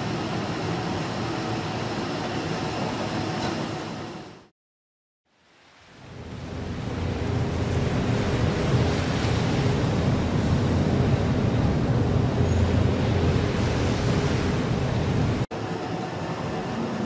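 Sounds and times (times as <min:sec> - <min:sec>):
wind and waves hissing: 0:00.0 - 0:04.5, 0:05.3 - 0:17.0
ship low rumble: 0:06.0 - 0:16.9.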